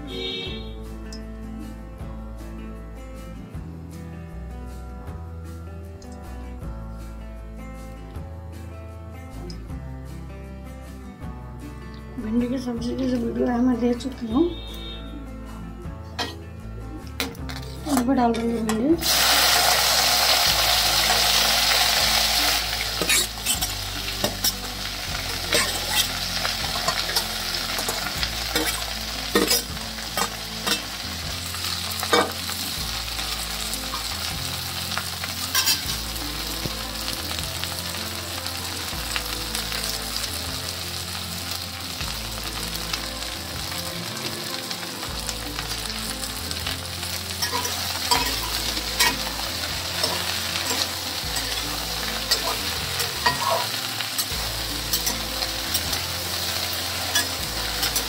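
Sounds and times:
food sizzling in hot oil: 19.0s - 58.0s.

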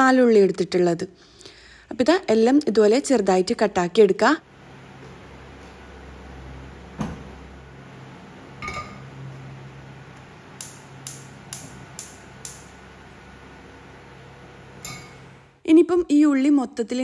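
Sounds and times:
gas igniter clicking: 10.6s - 12.8s
wok clanking on metal grate: 14.8s - 15.2s.

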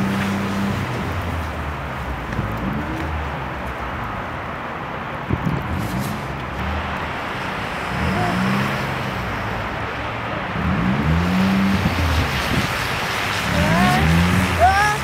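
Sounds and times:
wind and slush rushing: 5.2s - 15.0s.

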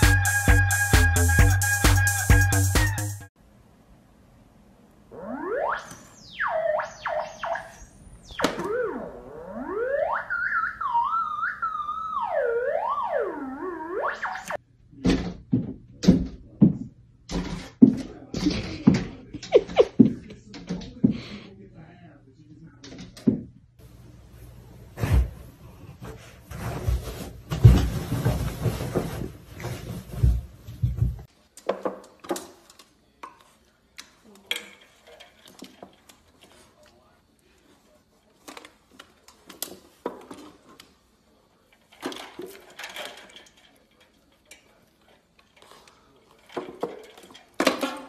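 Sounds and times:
theremin tone swooping: 5.1s - 14.6s
rubbing and handling noise: 24.4s - 31.6s.

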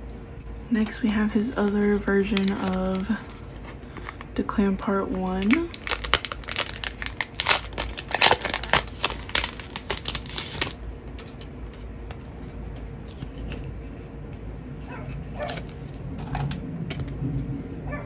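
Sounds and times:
plastic sleeve crinkling: 0.4s - 13.3s
faint dog barking: 14.8s - 15.6s.

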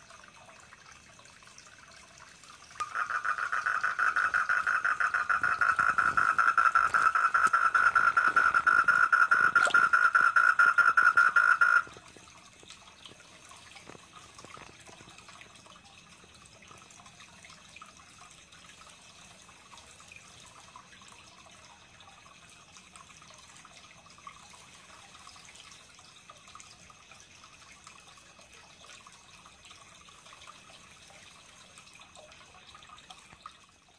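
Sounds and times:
faint trickle of water: 0.0s - 33.9s
tree frog calling: 2.8s - 12.0s.

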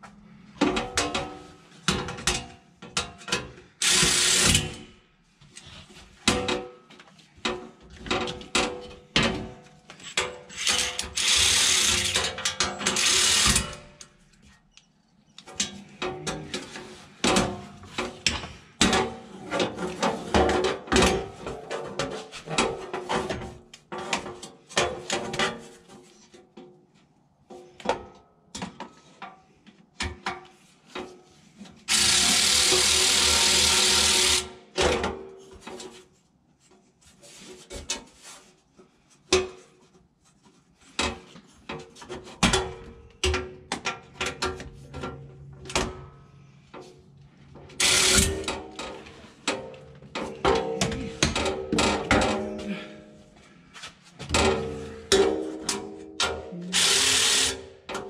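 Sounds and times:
ratchet clicking: 10.5s - 12.2s, 12.9s - 13.7s
cordless ratchet running: 10.6s - 12.2s, 12.9s - 13.7s, 31.9s - 34.4s, 56.8s - 57.6s.

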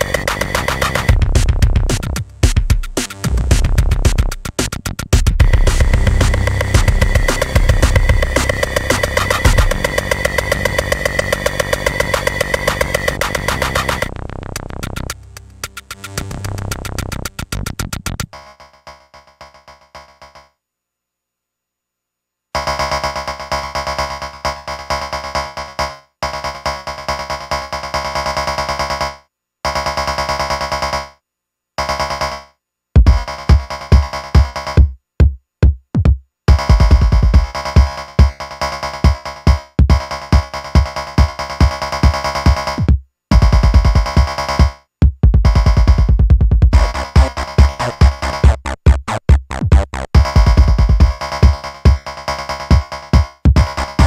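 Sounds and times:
synth chord pattern: 0.0s - 1.2s, 5.4s - 14.3s, 46.8s - 48.6s
heavy kick drum beat: 0.0s - 14.1s, 33.0s - 38.4s, 39.0s - 52.0s, 52.7s - 54.0s.

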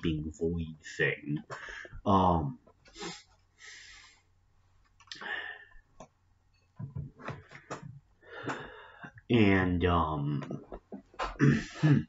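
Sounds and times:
man breathing quietly: 1.5s - 2.0s, 2.9s - 4.4s, 5.1s - 5.9s, 7.6s - 9.2s.

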